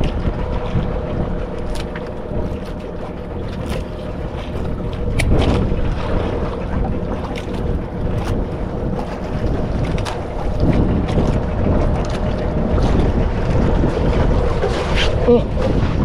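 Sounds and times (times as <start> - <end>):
water around boat hull: 0.0 - 16.0
wind buffeting microphone: 0.0 - 16.0.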